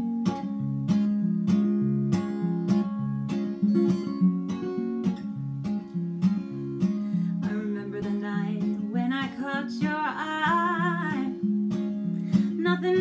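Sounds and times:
acoustic guitar strumming: 0:00.0 - 0:13.0
woman singing: 0:07.2 - 0:11.4, 0:12.3 - 0:13.0.

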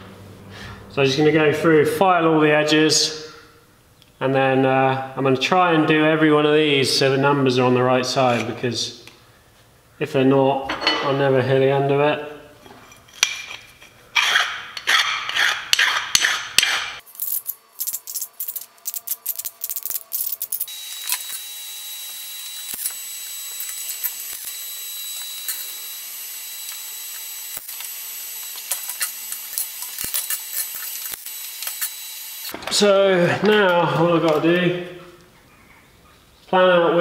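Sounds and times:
hand file rasping on metal: 0:14.2 - 0:17.0.

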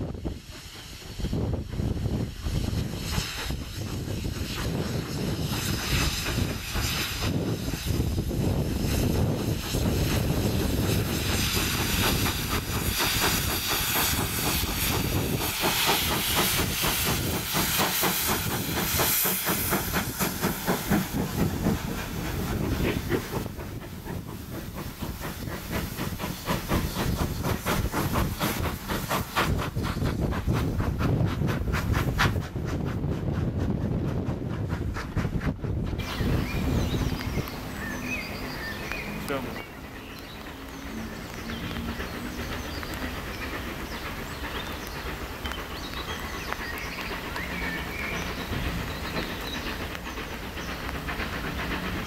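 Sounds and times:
coaches rolling on rails: 0:00.0 - 0:52.0
steam hissing: 0:00.0 - 0:52.0
steam locomotive exhaust beating: 0:00.0 - 0:52.0.

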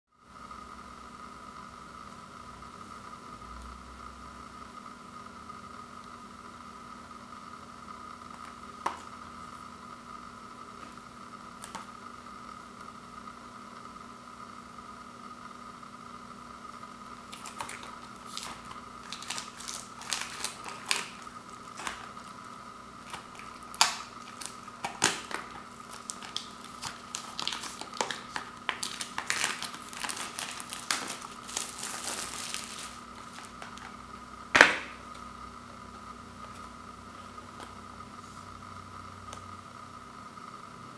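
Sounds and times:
faint steady hum: 0:00.1 - 0:40.9
plastic wrap crinkling and tearing: 0:17.3 - 0:34.0.

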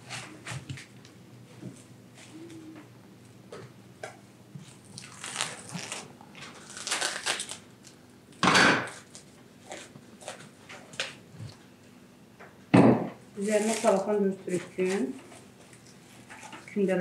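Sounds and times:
plastic cling film crinkling: 0:04.6 - 0:08.0, 0:08.9 - 0:11.2, 0:13.4 - 0:16.8.

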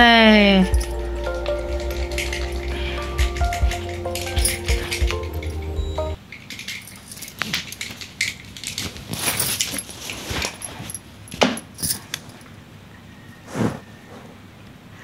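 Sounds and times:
cat scratching and rustling cloth: 0:07.3 - 0:11.1.

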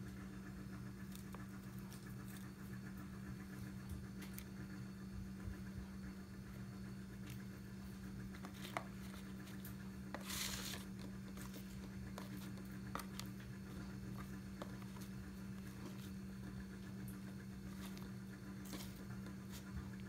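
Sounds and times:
steady low hum: 0:00.0 - 0:20.0
plastic rustle: 0:10.2 - 0:13.3.

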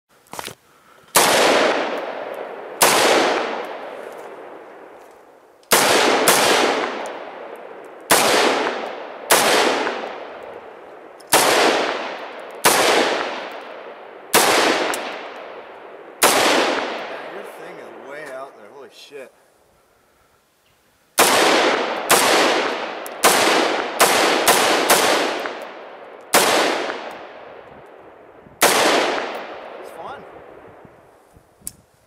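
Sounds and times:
rifle shots echoing: 0:01.1 - 0:05.0, 0:05.7 - 0:18.4, 0:21.2 - 0:28.0, 0:28.6 - 0:30.8.

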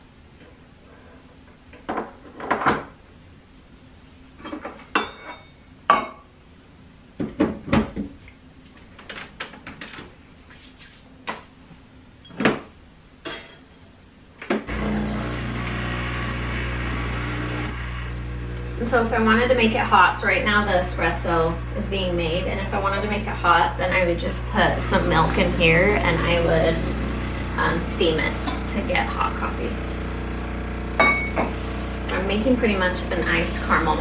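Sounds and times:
espresso machine pump humming: 0:14.7 - 0:34.0.

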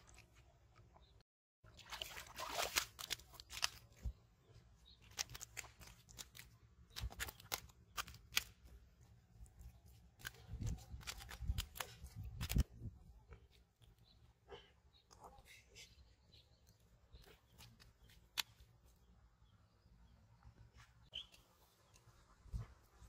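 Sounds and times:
fish flopping on wet mud: 0:01.7 - 0:04.1, 0:05.0 - 0:08.7.

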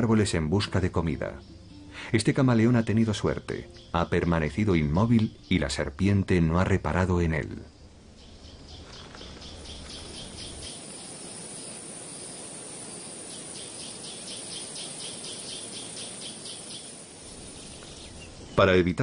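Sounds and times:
high rhythmic wildlife chirping: 0:00.0 - 0:19.0
steady hiss: 0:00.0 - 0:19.0.

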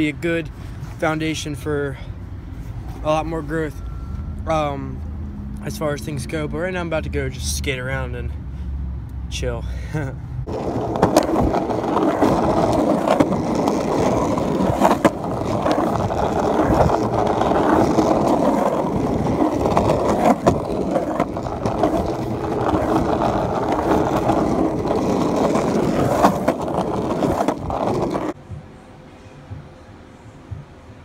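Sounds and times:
skateboard wheels rolling on pavement: 0:09.9 - 0:28.4
sharp skateboard clicks: 0:10.5 - 0:28.4.

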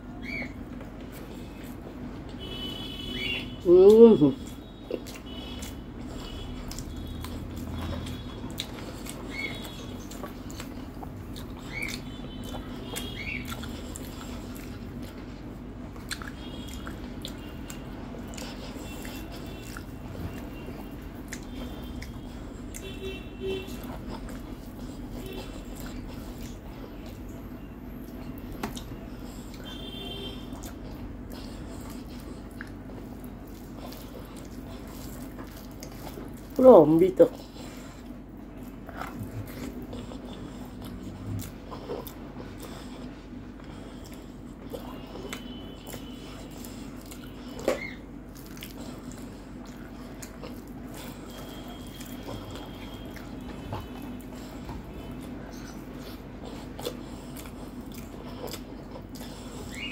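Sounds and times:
person chewing food: 0:00.0 - 0:59.9
steady low hum: 0:00.0 - 0:59.9
wet mouth clicks and smacks: 0:16.0 - 0:22.8.

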